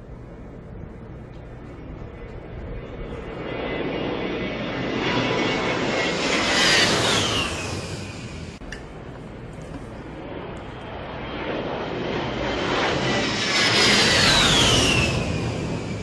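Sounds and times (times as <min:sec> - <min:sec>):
jet engine whine: 0:00.0 - 0:16.0.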